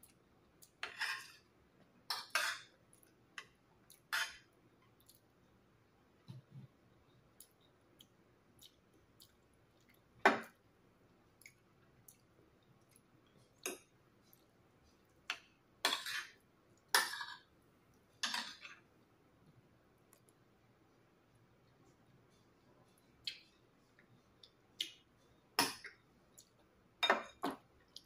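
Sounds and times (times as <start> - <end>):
cutlery clinking on a plate: 0.8 - 1.4, 2.1 - 2.7, 4.1 - 4.5, 15.3 - 17.5, 18.2 - 18.8, 27.0 - 27.6
cutlery scraping a plate: 0.8 - 1.4, 2.1 - 2.7, 4.1 - 4.5, 15.3 - 17.5, 18.2 - 18.8.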